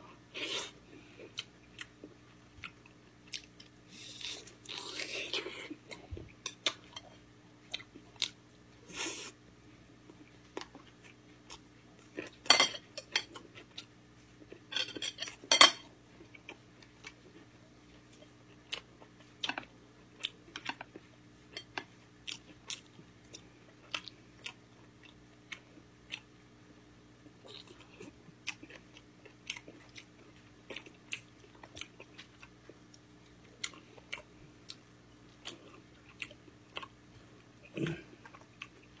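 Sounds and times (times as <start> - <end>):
soft chewing: 0.1 - 15.5, 16.1 - 39.0
utensils clinking on dishes: 12.4 - 13.4, 14.7 - 15.8.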